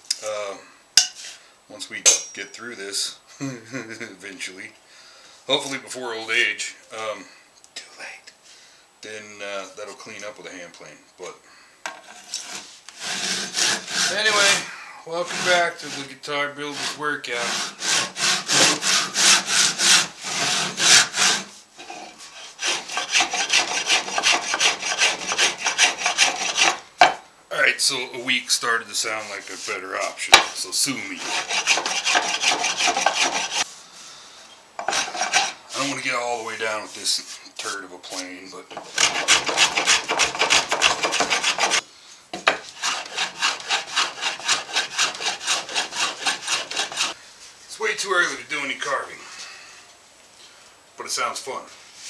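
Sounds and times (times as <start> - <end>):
block plane shaving wood: 12.2 - 21.6, 22.2 - 26.8, 30.3 - 33.7, 34.8 - 35.9, 38.1 - 41.8, 42.4 - 47.2
handsaw cutting wood: 12.2 - 21.6, 22.2 - 26.8, 30.3 - 33.7, 34.8 - 36.0, 38.7 - 41.8, 42.4 - 47.2.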